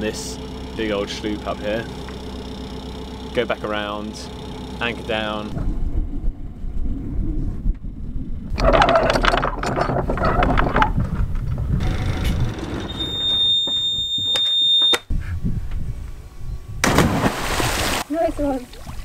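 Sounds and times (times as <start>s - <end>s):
diesel engine low rumble: 0.0s - 17.6s
high-pitched buzzer: 12.8s - 15.1s.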